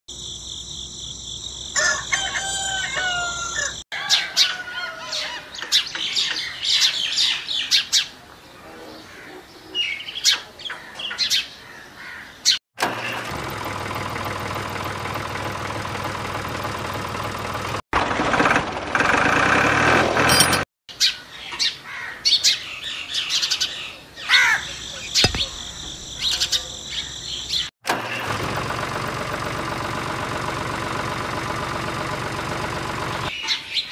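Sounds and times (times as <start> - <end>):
rooster crowing: 1.8 - 5.6
small birds chirping: 5.1 - 12.6, 20.9 - 27.7.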